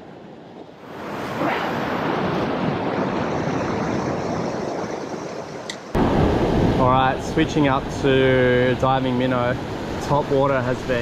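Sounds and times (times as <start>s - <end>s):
surf washing against rocks: 6.0s - 11.0s.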